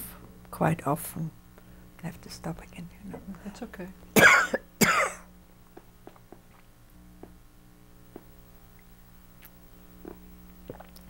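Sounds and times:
woman coughing: 0:04.2 - 0:05.3.

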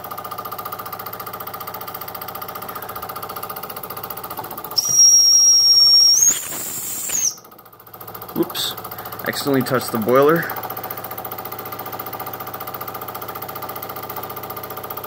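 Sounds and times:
toy steam engine chuffing: 0:04.7 - 0:07.4
high steam whistle: 0:04.8 - 0:07.4
steam hiss: 0:04.8 - 0:07.4.

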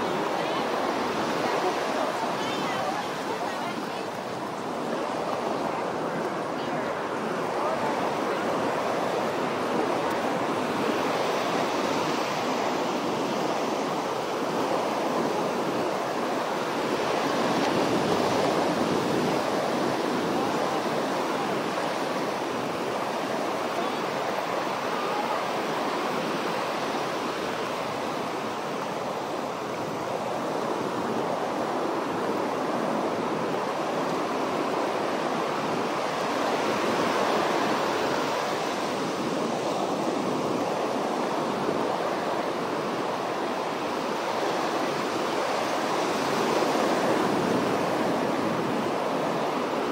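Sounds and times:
ocean surf breaking: 0:00.0 - 0:49.9.

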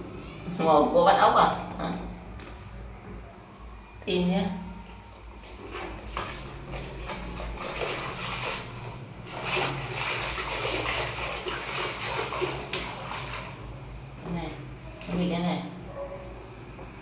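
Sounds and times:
water sloshing in a basin: 0:04.1 - 0:16.1.

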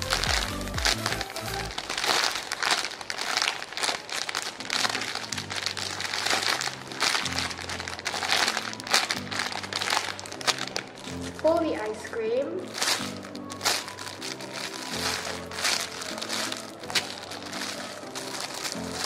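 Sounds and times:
background music with bass line: 0:00.0 - 0:01.7
plastic bag crinkling: 0:00.0 - 0:19.0.

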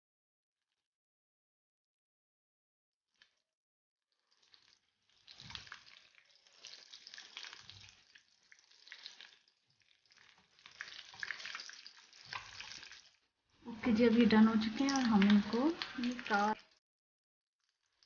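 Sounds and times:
cutlets sizzling in oil: 0:04.2 - 0:16.8.

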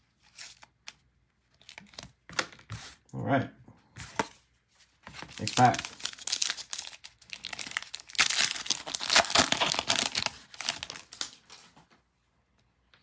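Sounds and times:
foil wrapper tearing and crinkling: 0:05.2 - 0:11.6.

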